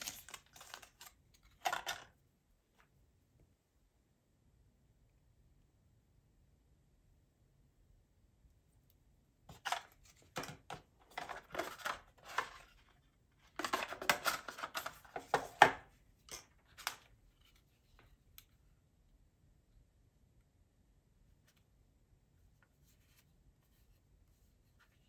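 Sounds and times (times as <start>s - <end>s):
cardboard and plastic rustling: 0.0s - 2.1s, 9.5s - 17.0s.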